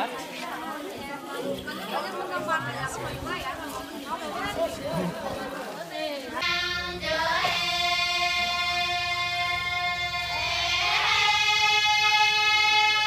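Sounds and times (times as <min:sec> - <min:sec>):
girls singing held notes: 0:06.2 - 0:13.0.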